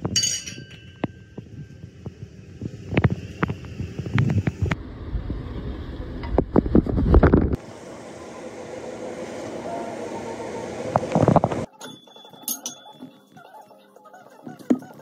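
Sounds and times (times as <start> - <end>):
low steady hum: 0.0 - 13.1.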